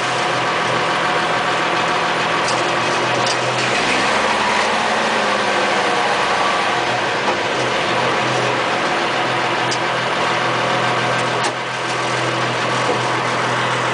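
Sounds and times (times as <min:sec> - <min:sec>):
diesel truck engine running: 0:00.0 - 0:13.9.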